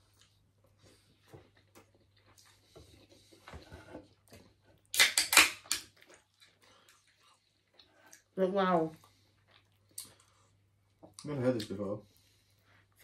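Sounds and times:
faint handling and eating: 0:00.0 - 0:05.0, 0:05.9 - 0:13.0
drink can cracking open: 0:04.9 - 0:05.9.

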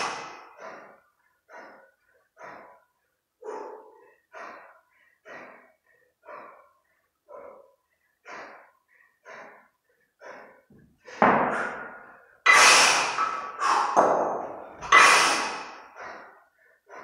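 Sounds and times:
person breathing heavily: 0:00.0 - 0:17.0
forceful exhalations: 0:10.2 - 0:17.0.

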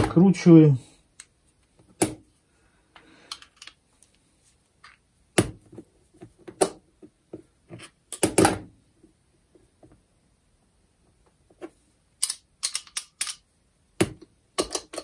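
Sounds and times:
pliers and metal parts clicking: 0:12.2 - 0:13.5.

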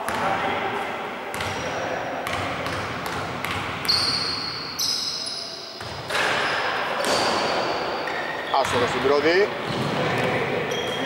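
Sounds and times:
sneaker squeaks on floor: 0:01.3 - 0:01.8, 0:03.8 - 0:11.0
players' voices: 0:06.0 - 0:11.0.

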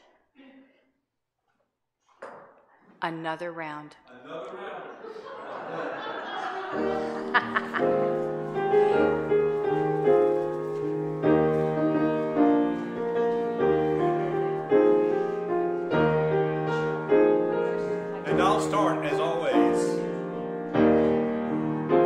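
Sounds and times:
piano playing slow hymn chords: 0:06.4 - 0:22.0.

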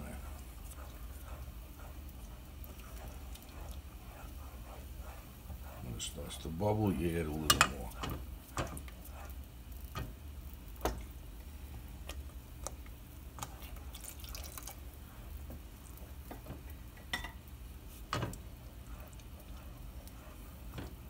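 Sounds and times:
milk dripping and sloshing: 0:00.0 - 0:05.8, 0:12.1 - 0:16.0
wooden spoon stirring sauce: 0:00.0 - 0:21.0.

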